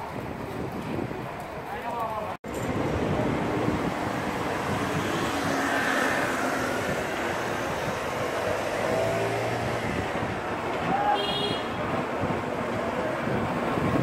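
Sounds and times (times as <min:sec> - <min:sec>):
street traffic noise: 0:00.0 - 0:14.0
motor scooter passing: 0:02.7 - 0:10.9.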